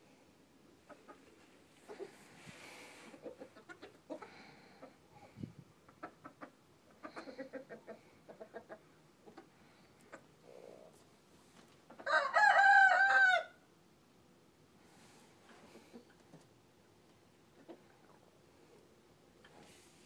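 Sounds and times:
quiet clucking: 0:03.1 - 0:10.4, 0:15.4 - 0:18.3
rooster crowing: 0:12.0 - 0:13.6.

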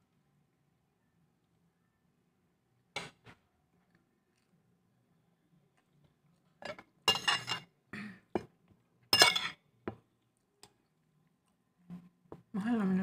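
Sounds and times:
spoon clinking on ceramic plates: 0:06.6 - 0:07.7, 0:09.2 - 0:09.6.

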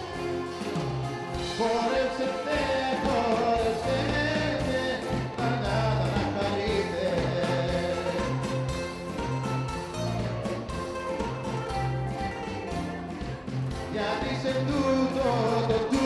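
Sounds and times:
bass line: 0:00.0 - 0:16.0
bouzouki: 0:00.0 - 0:16.0
drums: 0:00.0 - 0:16.0
man singing: 0:01.4 - 0:08.8, 0:13.7 - 0:16.0.

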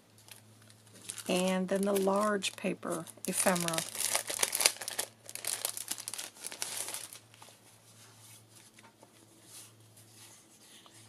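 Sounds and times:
plastic sleeve crinkling: 0:00.0 - 0:07.6
paper rustling: 0:00.2 - 0:11.0.

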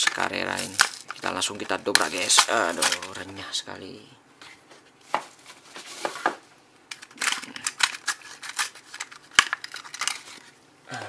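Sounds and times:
packaging rustle: 0:00.0 - 0:03.4, 0:05.3 - 0:10.6
plastic blister pack crackling: 0:00.0 - 0:03.4, 0:06.9 - 0:10.6.

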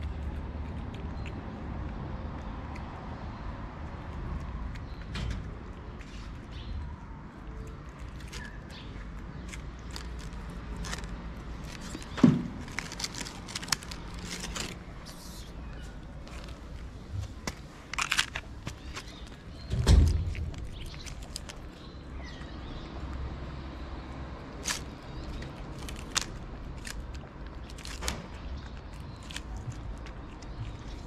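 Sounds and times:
cat chewing wet food: 0:00.0 - 0:15.1, 0:16.0 - 0:31.0
dull thump: 0:12.1 - 0:12.6.

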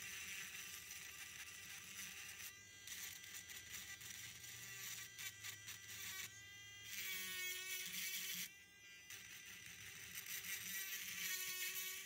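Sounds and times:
rotary tool grinding rock: 0:00.0 - 0:08.5, 0:09.1 - 0:12.0.

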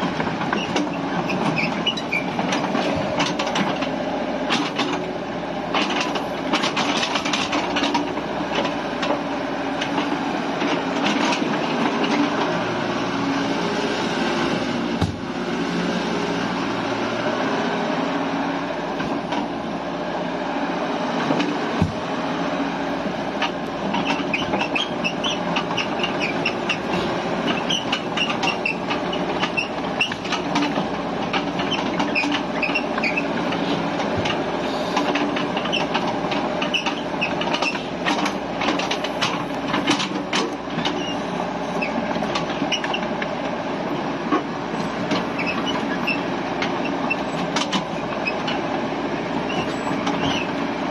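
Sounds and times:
excavator engine under load: 0:00.0 - 0:50.9.

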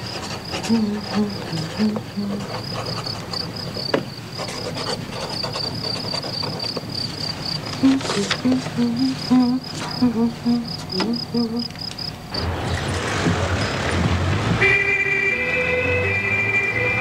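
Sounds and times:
high insect chirping: 0:00.0 - 0:12.4.

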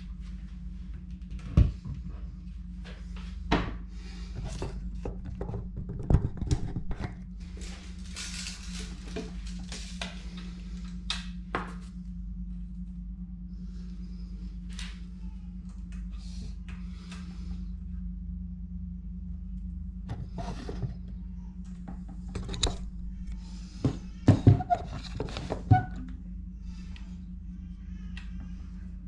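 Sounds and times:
steady low hum: 0:00.0 - 0:29.0
rustling handling noise: 0:07.4 - 0:10.8
wooden board clunking and knocking: 0:23.8 - 0:26.0.

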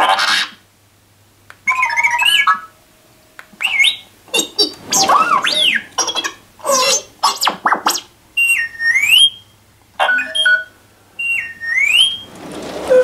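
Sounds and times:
robot beeps and whistles: 0:03.6 - 0:09.4, 0:10.0 - 0:12.2.

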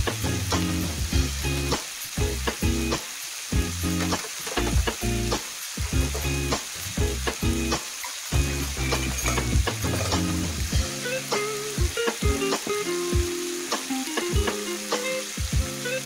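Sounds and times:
background music: 0:00.0 - 0:03.0, 0:08.4 - 0:16.0
food sizzling in oil: 0:00.0 - 0:16.0.

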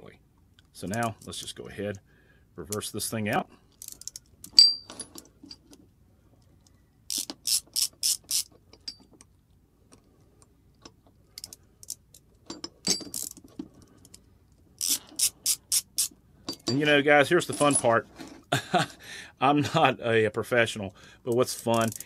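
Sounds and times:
ratchet driver clicking: 0:07.1 - 0:09.0, 0:13.0 - 0:13.4, 0:14.8 - 0:16.1, 0:21.7 - 0:22.0.

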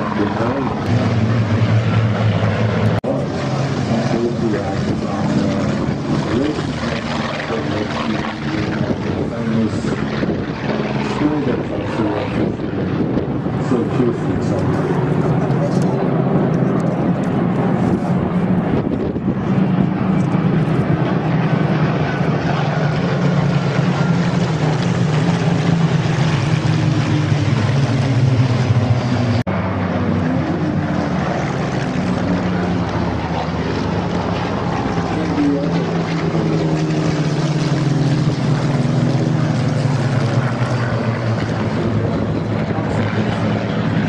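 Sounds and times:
aircraft piston engines droning overhead: 0:00.0 - 0:44.0.

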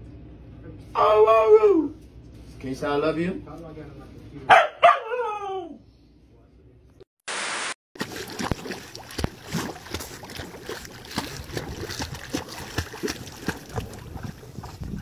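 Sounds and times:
dog paddling and splashing: 0:08.0 - 0:15.0.

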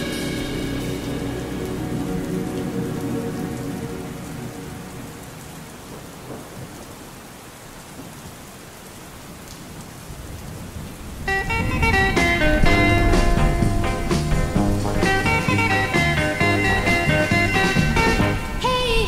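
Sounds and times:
song: 0:00.0 - 0:06.0, 0:11.3 - 0:19.0
low thunder rumble: 0:00.0 - 0:07.2, 0:09.8 - 0:19.0
steady rain falling: 0:00.0 - 0:19.0.

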